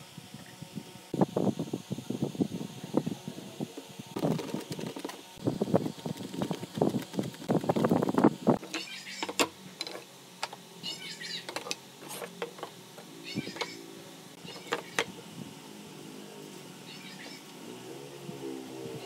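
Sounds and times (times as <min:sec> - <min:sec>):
short high chirping calls: 0:10.8 - 0:11.5, 0:13.2 - 0:13.8, 0:16.9 - 0:17.5.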